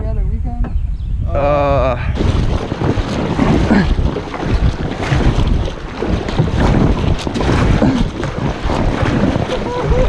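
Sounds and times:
wind buffeting microphone: 0.0 - 10.0
water splashing along kayak hull: 2.1 - 10.0.

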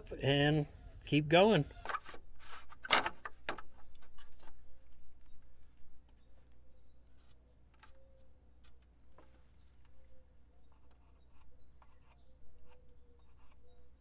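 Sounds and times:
marker scratching on steel: 10.6 - 14.0.

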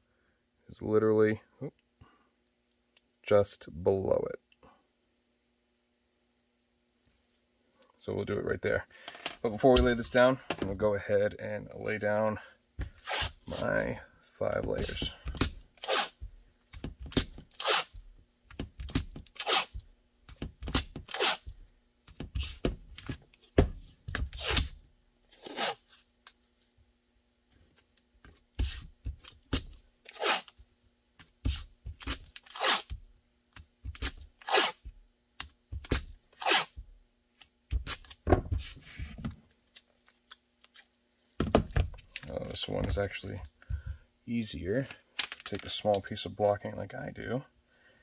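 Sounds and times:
tape ripping off roll: 14.8 - 19.8, 20.6 - 21.5, 24.2 - 25.9, 28.6 - 30.6, 31.4 - 33.0, 33.8 - 34.9, 35.7 - 36.8.

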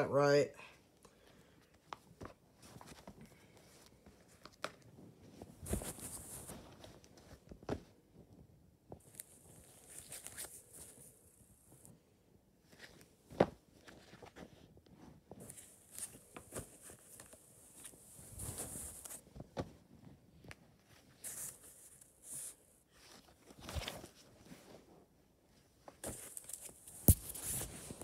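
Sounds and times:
magazine pages rustling: 1.8 - 7.9, 9.0 - 11.1, 12.7 - 14.8, 22.9 - 24.5.

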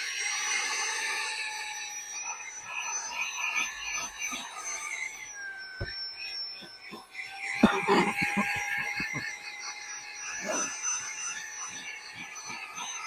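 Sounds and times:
handheld vacuum cleaner running: 0.0 - 13.0.

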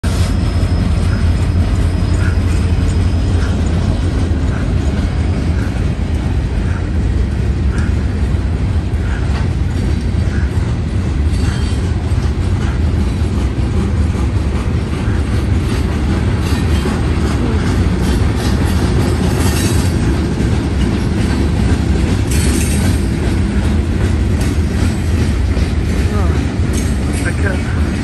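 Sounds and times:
freight train rumbling on rails: 0.0 - 28.0
faint rail clicks: 0.1 - 28.0.

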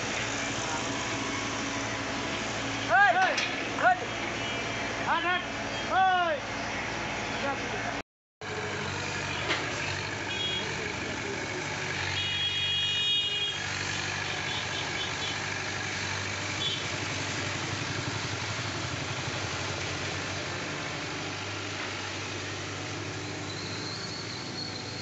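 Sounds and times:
excavator diesel engine running: 8.4 - 12.5, 13.3 - 25.0.

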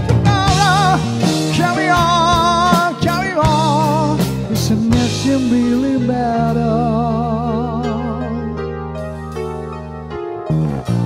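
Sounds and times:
man singing with vibrato: 0.0 - 8.6
rock band playing ballad: 0.0 - 11.0.

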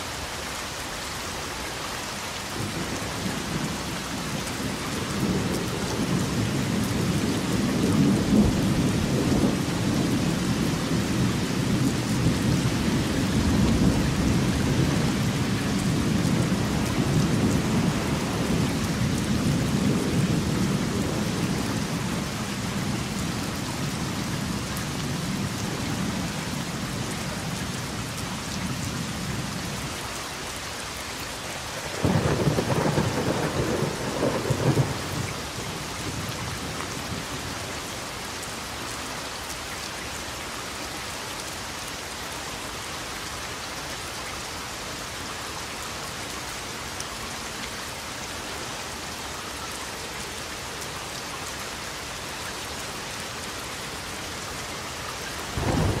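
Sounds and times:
steady rain: 0.0 - 56.0
thunder rumbling: 31.9 - 36.3, 55.5 - 56.0.

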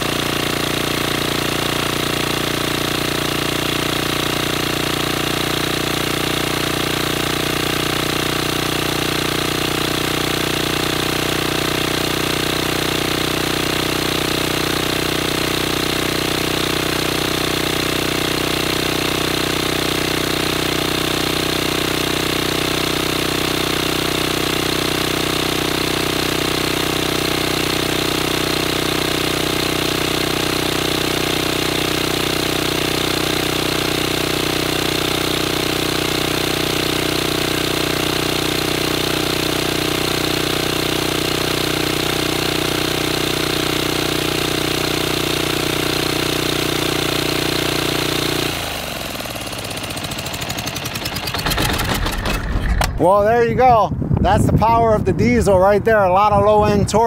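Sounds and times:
diesel engine at high revs: 0.0 - 57.0.

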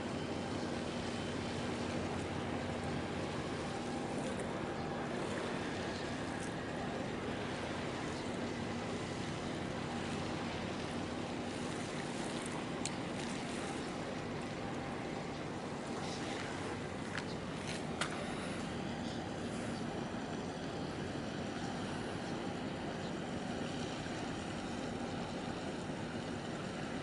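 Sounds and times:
low hum of ship engines: 0.0 - 27.0
water noise: 0.0 - 27.0
wind: 0.0 - 27.0
faint ticks: 12.8 - 13.0.

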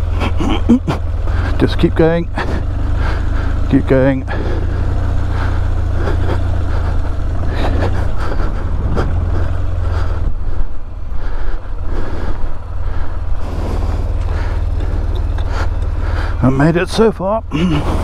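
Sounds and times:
motorcycle engine under load: 0.0 - 18.0
wind rumble on microphone: 7.7 - 11.2.

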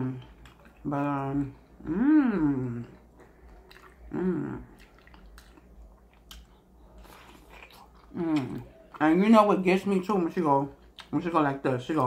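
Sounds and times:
wet mouth clicks and chewing: 0.1 - 0.9, 2.9 - 9.0, 10.8 - 11.3
person humming: 1.8 - 3.0, 4.0 - 4.8.

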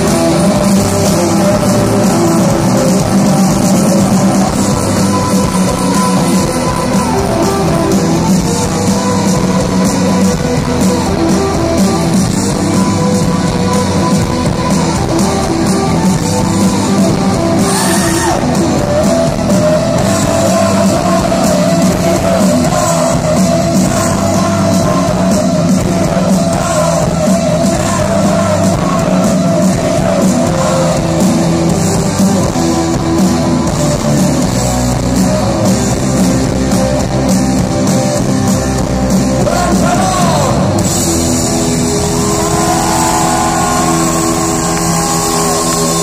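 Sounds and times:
live rock band playing: 0.0 - 46.0
person singing: 17.0 - 32.8, 39.4 - 40.8.

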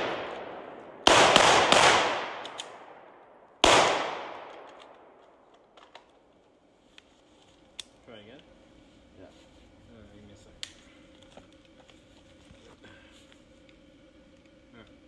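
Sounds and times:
echoing gunshots: 0.0 - 5.2.

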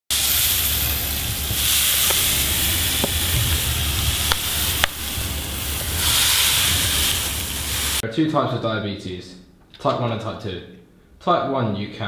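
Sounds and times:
steady hissing: 0.1 - 8.0
low rumble: 0.5 - 8.0.

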